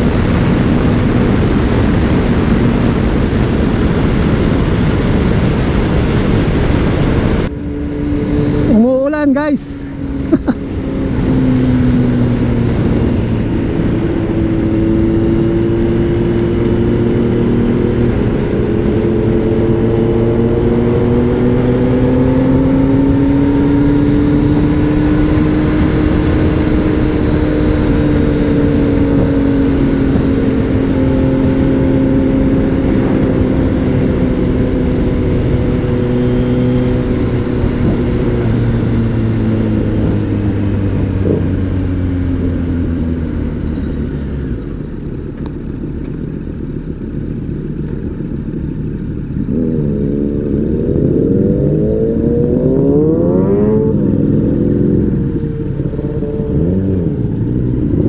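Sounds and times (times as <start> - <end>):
wind noise: 0.0 - 45.5
motorcycle engine cruising: 0.0 - 58.0.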